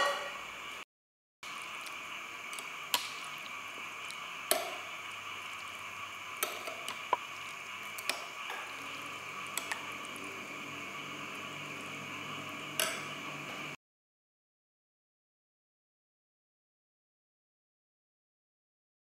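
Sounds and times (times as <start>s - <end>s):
liquid stirring and scooping: 1.5s - 11.5s.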